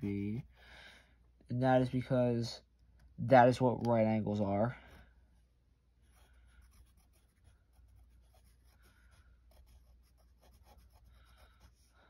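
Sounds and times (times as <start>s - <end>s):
pencil scratching on paper: 0.0s - 0.5s, 6.0s - 11.9s.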